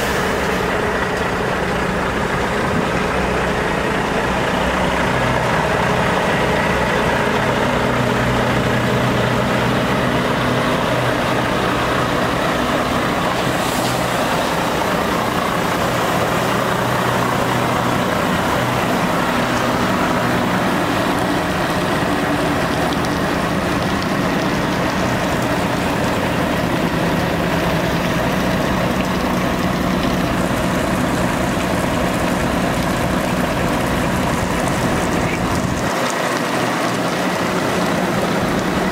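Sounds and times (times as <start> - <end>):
diesel truck engine running: 0.0 - 38.9.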